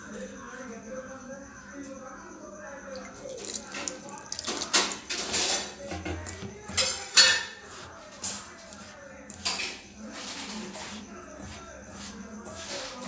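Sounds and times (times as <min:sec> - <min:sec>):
water splashing into steel bowl: 0:03.0 - 0:07.5
hand mixing in metal bowl: 0:03.0 - 0:13.0.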